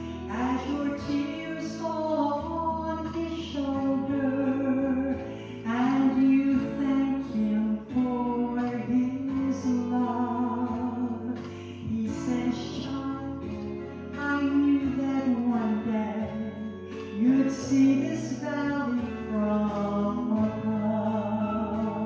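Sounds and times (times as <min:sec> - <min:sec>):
instrumental accompaniment with bass: 0:00.0 - 0:22.0
woman singing: 0:00.0 - 0:22.0.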